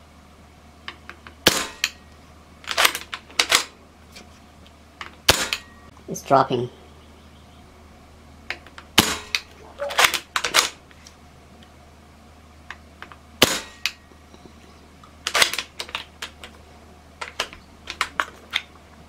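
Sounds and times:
air rifle shots: 0:01.4 - 0:02.0, 0:05.2 - 0:05.7, 0:08.9 - 0:10.8, 0:13.4 - 0:14.0.

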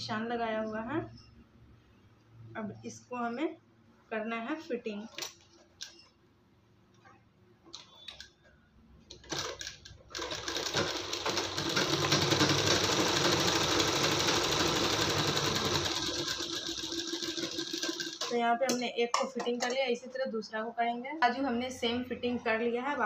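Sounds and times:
sewing machine running: 0:09.1 - 0:18.4.

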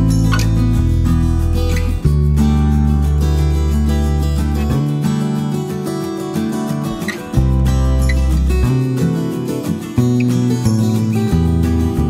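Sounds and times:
music with sustained chords: 0:00.0 - 0:12.0.

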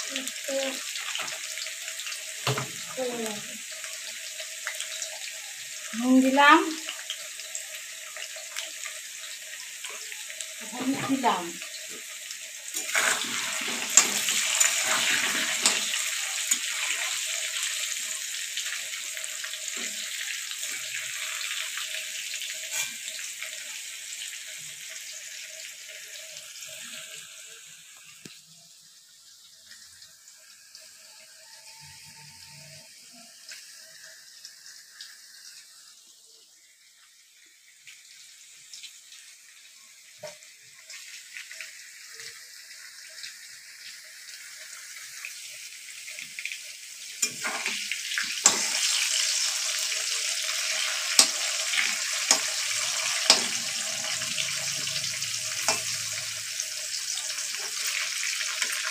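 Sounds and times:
potatoes sizzling in hot oil: 0:00.0 - 0:58.9
metal spatula knocking wok: 0:52.2 - 0:54.0.

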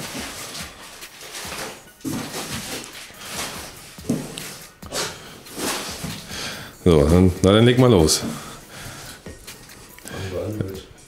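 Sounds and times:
crumpled newspaper rustling: 0:00.0 - 0:07.3.

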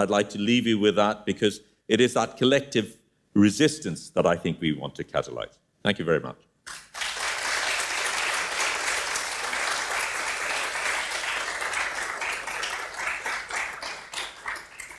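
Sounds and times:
audience applauding: 0:06.7 - 0:14.9.

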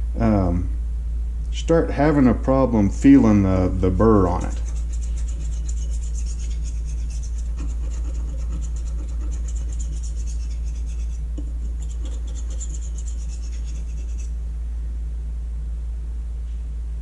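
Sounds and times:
steady low hum: 0:00.0 - 0:17.0
knife scraping sharpening stone: 0:04.4 - 0:14.3.

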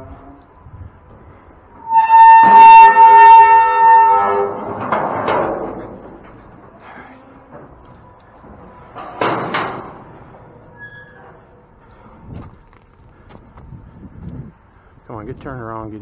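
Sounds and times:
gate scraping: 0:01.7 - 0:12.2
metal gate squealing: 0:01.8 - 0:07.6, 0:09.0 - 0:11.6.

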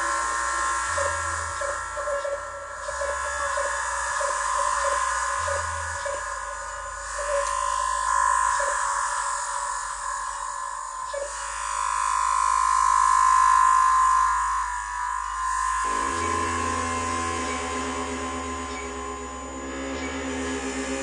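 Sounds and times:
synthesizer nasal drone: 0:00.0 - 0:21.0.

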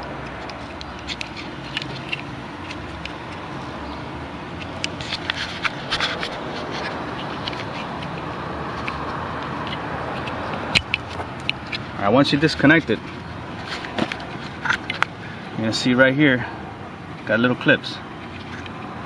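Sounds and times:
steady background noise: 0:00.0 - 0:19.0
plastic clicks and scrapes: 0:00.2 - 0:03.4, 0:04.6 - 0:11.8, 0:13.6 - 0:15.1.

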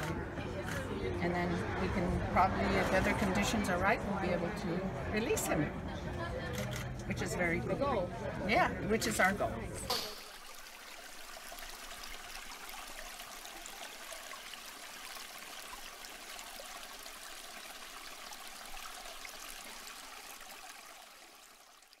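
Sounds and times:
trickling water: 0:08.6 - 0:22.0.

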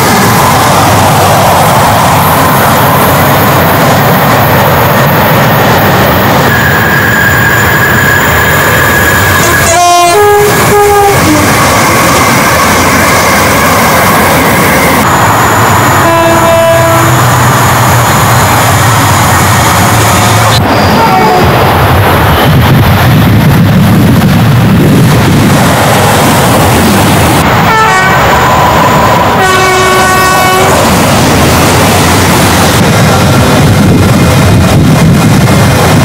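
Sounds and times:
trains rushing past: 0:00.0 - 0:36.0
two-tone train horn: 0:09.4 - 0:11.5, 0:16.0 - 0:17.3, 0:20.9 - 0:21.5, 0:27.7 - 0:28.3, 0:29.4 - 0:30.8.

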